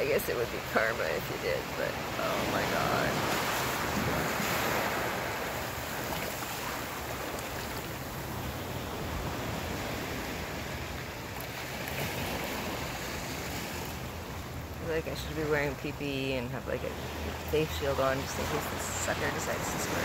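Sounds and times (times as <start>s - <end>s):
ocean surf washing: 0.0s - 20.0s
wind on microphone: 1.8s - 14.2s.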